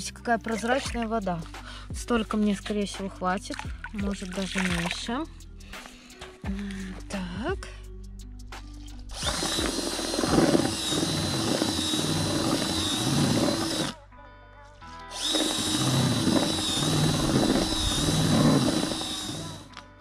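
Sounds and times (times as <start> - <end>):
background music: 0.0 - 20.0
electric drill mixing paddle churning: 9.1 - 14.0, 15.1 - 19.8.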